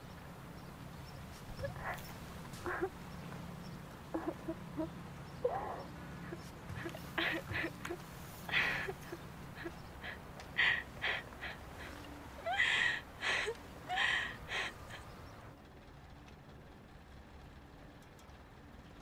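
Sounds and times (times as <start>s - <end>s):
woman sobbing: 1.4s - 3.1s, 4.1s - 15.4s.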